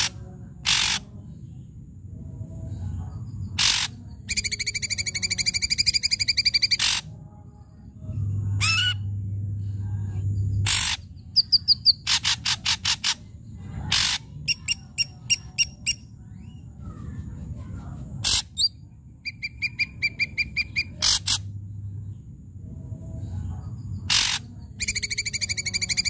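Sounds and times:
drongo singing: 2.4 - 7.1, 8.0 - 16.8, 18.2 - 22.3, 22.9 - 26.0.

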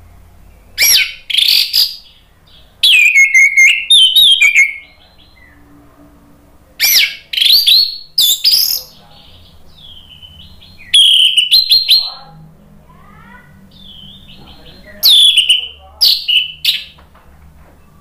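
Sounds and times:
thrush singing whistled phrases: 0.8 - 2.2, 2.8 - 5.6, 6.8 - 9.0, 9.8 - 12.2, 13.7 - 17.0.

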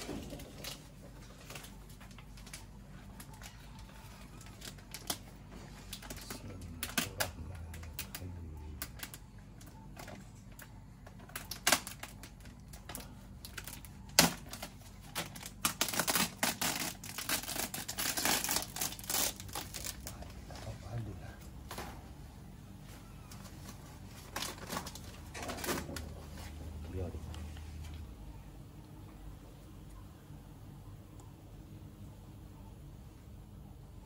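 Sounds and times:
plastic sheet peeling: 0.0 - 21.1, 23.2 - 26.6.

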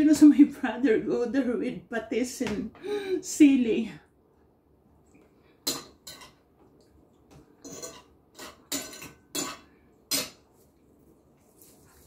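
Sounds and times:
cutlery clinking on dishes: 5.6 - 6.4, 7.6 - 10.4.

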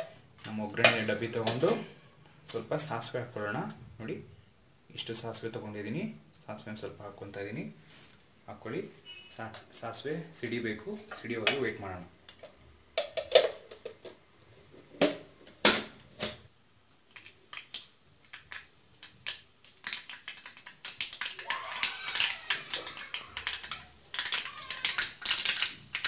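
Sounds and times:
seeds popping in hot oil: 16.5 - 26.0.

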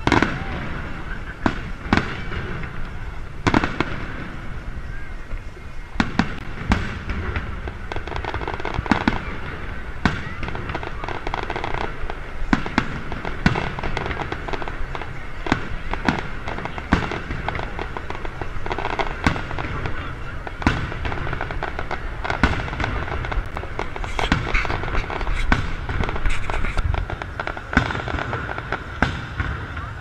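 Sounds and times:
firework bangs: 0.0 - 30.0
firework crackling: 0.0 - 30.0.

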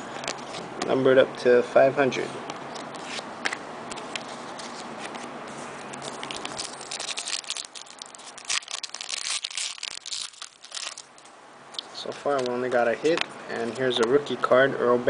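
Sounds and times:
foil pack crinkling and tearing: 5.9 - 11.3.

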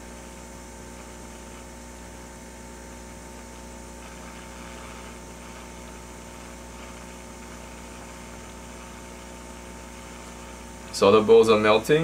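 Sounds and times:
faint steady hum: 0.0 - 12.0
hot air blower hiss: 0.0 - 12.0.

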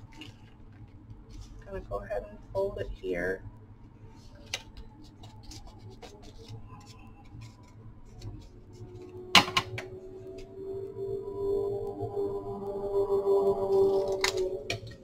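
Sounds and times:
paper rustling and folding: 0.0 - 1.6, 4.1 - 9.2
soft background music: 0.0 - 15.0.

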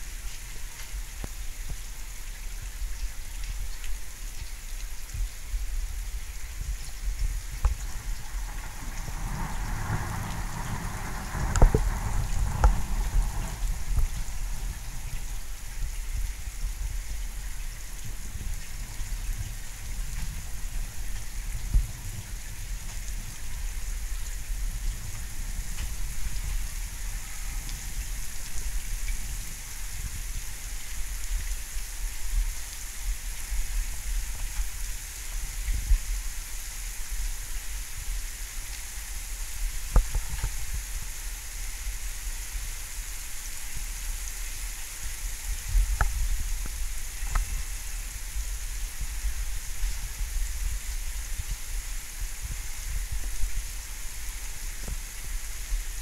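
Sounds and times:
steady rain: 0.0 - 56.0.

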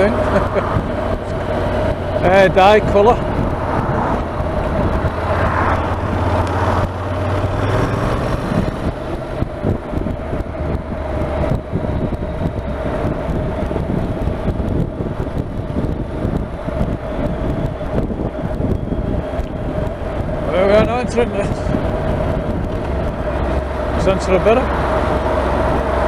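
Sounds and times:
motorcycle engine rumbling: 0.0 - 26.0
wind noise on microphone: 0.0 - 26.0.

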